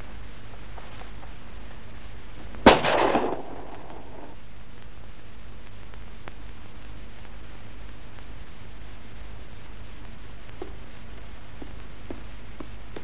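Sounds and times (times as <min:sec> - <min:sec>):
soundtrack hiss: 0:00.0 - 0:13.0
sharp bang with echoing rumble: 0:02.6 - 0:04.4.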